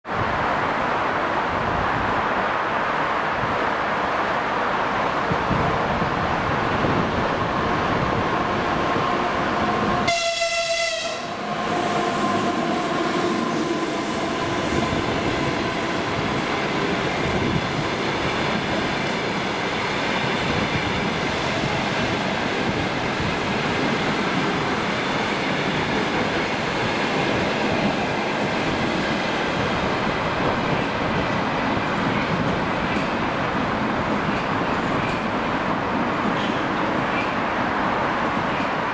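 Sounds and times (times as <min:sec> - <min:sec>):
train wheels rolling on rail: 0:00.1 - 0:38.9
train horn blast: 0:10.0 - 0:14.3.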